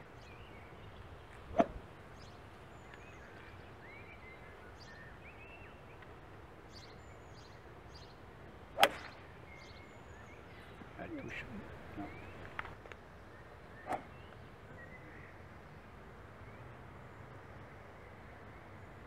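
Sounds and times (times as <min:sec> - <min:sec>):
birds chirping faintly: 0:00.0 - 0:19.0
golf club striking ball: 0:08.8 - 0:09.2.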